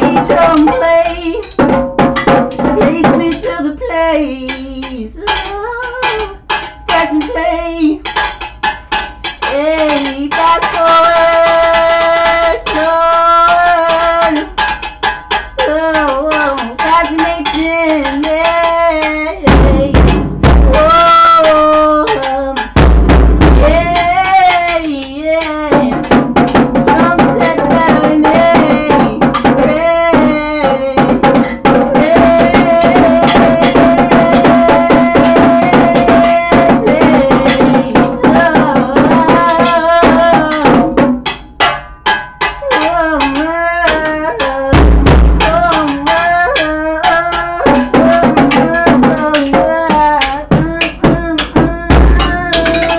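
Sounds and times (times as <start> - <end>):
drum kit played with sticks: 0.0 - 52.9
man wordless singing: 26.8 - 41.0, 42.6 - 52.9.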